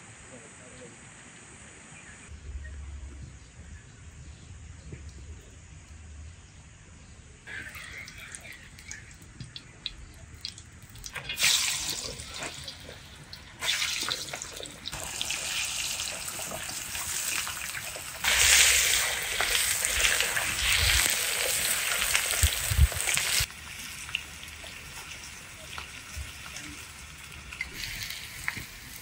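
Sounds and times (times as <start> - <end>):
running water: 7.5 - 29.0.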